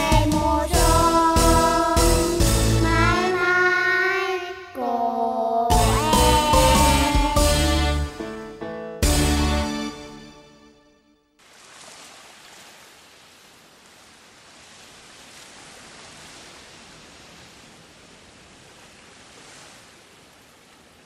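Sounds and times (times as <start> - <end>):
music: 0.0 - 4.0, 5.7 - 11.3.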